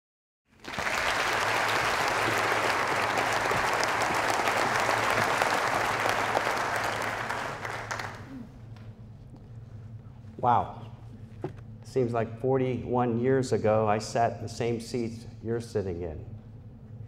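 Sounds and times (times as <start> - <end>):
audience applauding: 0.6 - 8.5
faint low hum: 0.6 - 17.0.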